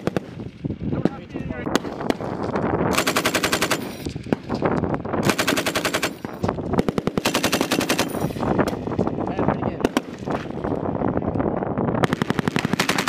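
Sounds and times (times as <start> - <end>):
machine gun automatic fire: 2.9 - 4.1, 5.2 - 8.4, 12.0 - 13.0.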